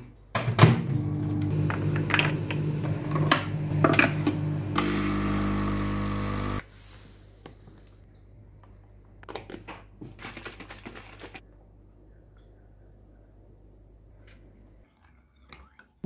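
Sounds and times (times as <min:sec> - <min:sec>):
small electric motor humming: 0:04.8 - 0:06.6.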